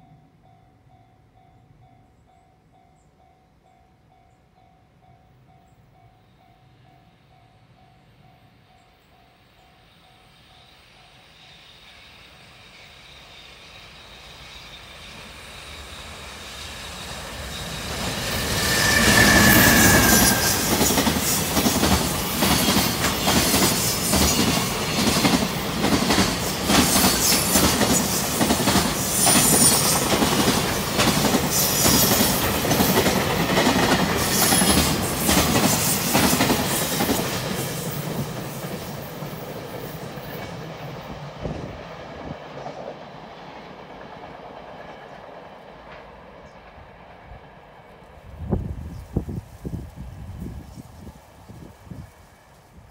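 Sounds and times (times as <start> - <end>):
freight train rumble: 0.0 - 52.9
high wheel squeals: 10.2 - 21.5.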